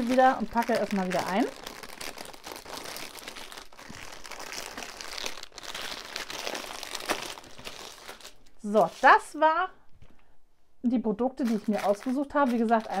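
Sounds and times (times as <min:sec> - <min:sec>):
packaging crinkling: 0:00.0 - 0:09.2, 0:11.4 - 0:13.0.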